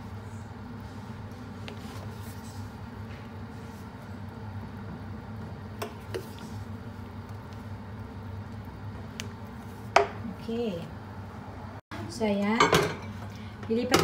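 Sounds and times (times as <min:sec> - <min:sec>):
steady low hum: 0:00.0 - 0:13.9
wet batter being stirred: 0:05.4 - 0:10.2.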